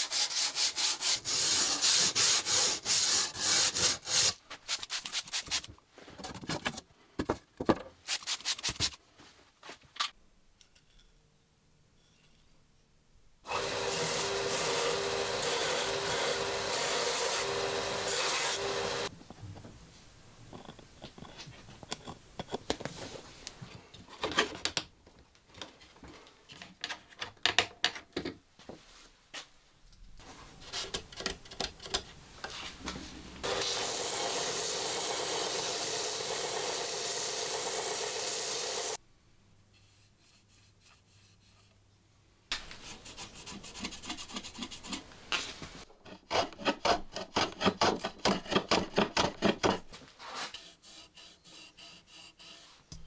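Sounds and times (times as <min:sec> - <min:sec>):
sandpaper rubbing on wood: 0:00.0 - 0:05.6, 0:50.2 - 0:52.9
belt sander grinding: 0:13.5 - 0:19.1, 0:33.4 - 0:38.0.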